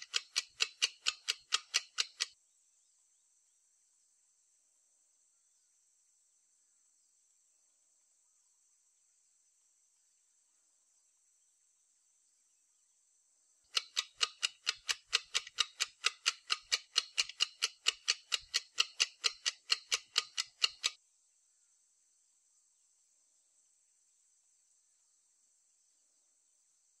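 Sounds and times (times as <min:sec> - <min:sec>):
woodpecker knocking: 0:00.0 - 0:02.4, 0:13.7 - 0:21.0.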